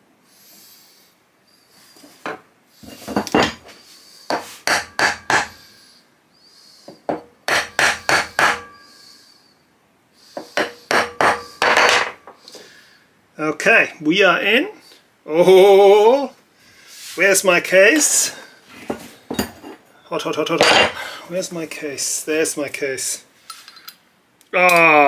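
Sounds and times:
hammer tapping wooden block: 7.1s - 8.7s.

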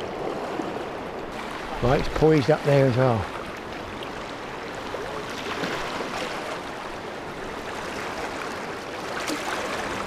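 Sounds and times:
sea water sloshing on rocks: 7.6s - 10.0s
small splashes: 9.0s - 10.0s.

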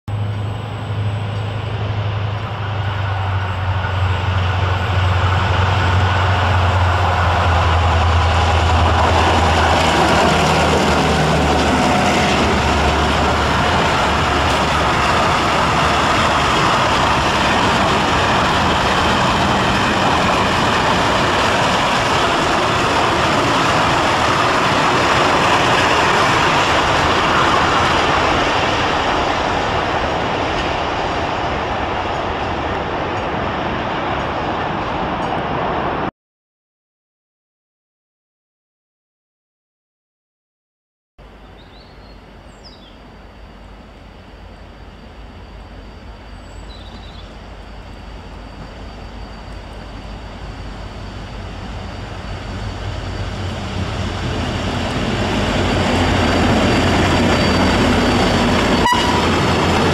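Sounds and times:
freight wagons rumbling by: 0.1s - 34.4s, 45.5s - 59.9s
diesel locomotive engine drone: 0.1s - 36.1s, 41.2s - 59.9s.

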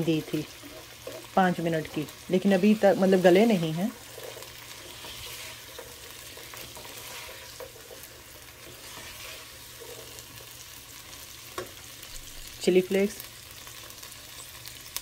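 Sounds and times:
spatula scraping pan: 0.0s - 11.8s
food sizzling in a frying pan: 0.0s - 15.0s.

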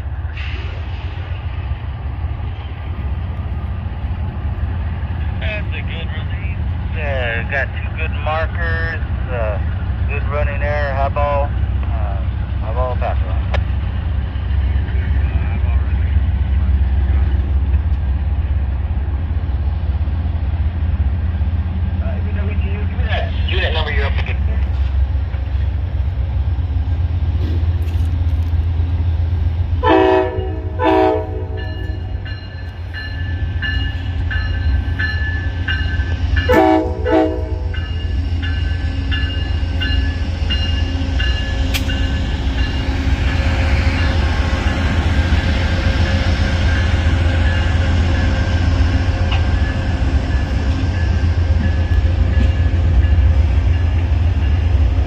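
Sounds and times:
diesel locomotive engine rumbling: 0.0s - 55.0s
train horn blasts: 29.8s - 32.1s, 36.4s - 37.8s
train bell ringing: 31.4s - 45.0s, 46.6s - 55.0s
train wheels clattering on rails: 31.5s - 55.0s.

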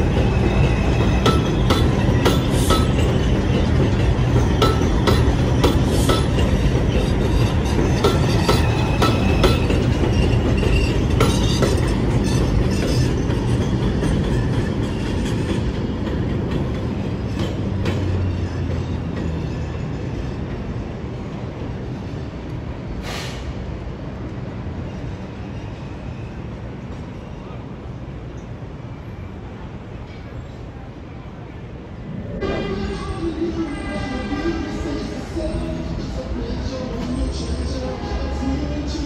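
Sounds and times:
high wheel squeals: 0.0s - 15.5s
train wheels clattering over rail joints: 0.0s - 19.4s.

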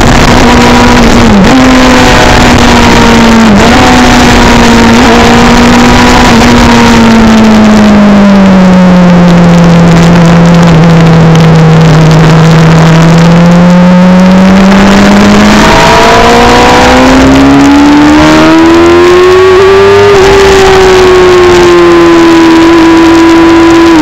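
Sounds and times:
wind rush over microphone: 0.0s - 7.5s
motorcycle engine accelerating: 0.0s - 24.0s.

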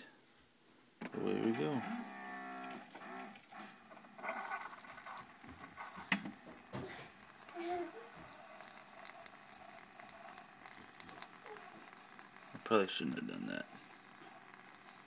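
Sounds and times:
coffee pouring onto paper: 4.2s - 15.0s.

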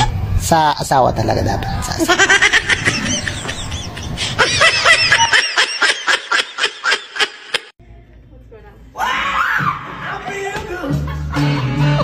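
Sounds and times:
high-pitched giggling: 2.0s - 7.7s.

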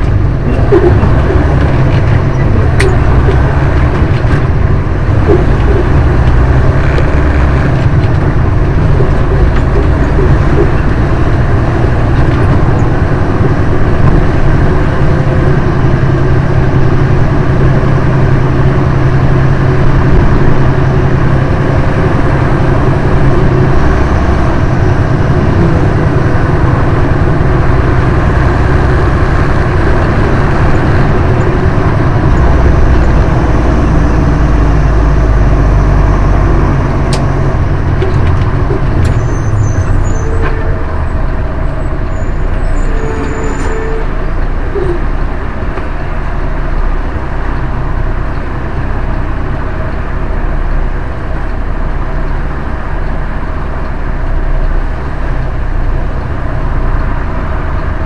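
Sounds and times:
truck diesel engine under load: 0.0s - 58.0s.

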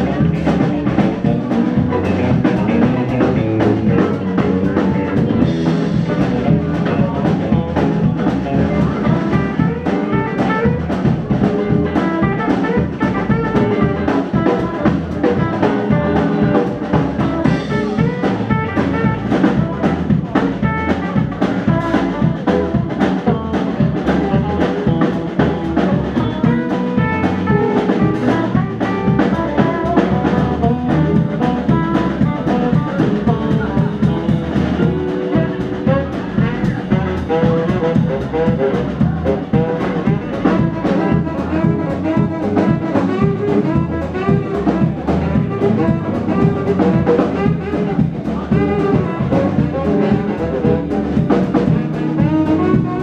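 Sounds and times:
drum kit beat: 0.0s - 53.0s
electric bass: 0.0s - 53.0s
electric guitars: 0.0s - 53.0s
saxophone playing: 0.0s - 53.0s.

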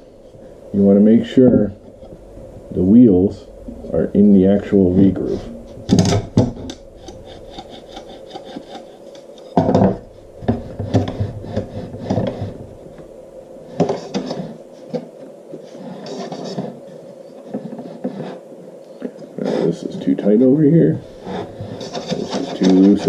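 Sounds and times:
rails scraping across wood: 4.8s - 12.8s, 15.6s - 16.8s, 19.4s - 23.0s.

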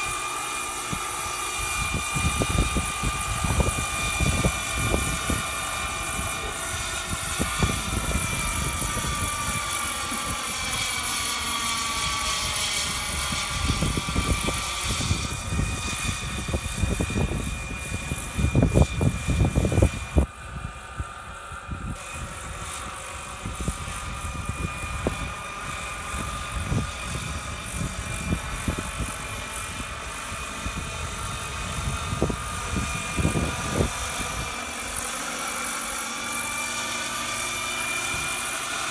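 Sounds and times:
high turbine whine: 0.0s - 38.9s
rotor rumble: 0.7s - 20.3s.

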